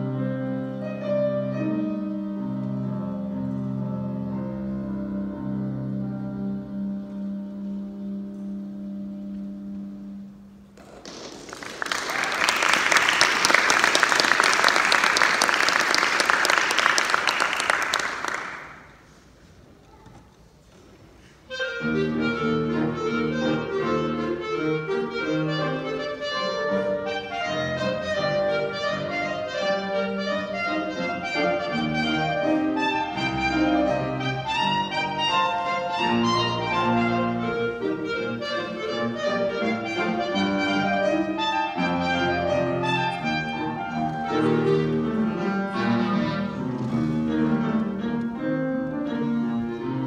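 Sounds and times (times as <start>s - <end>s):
clarinet: 0.0s - 10.7s, 21.2s - 50.0s
piano: 0.0s - 19.1s, 21.5s - 50.0s
audience applauding: 10.8s - 19.1s.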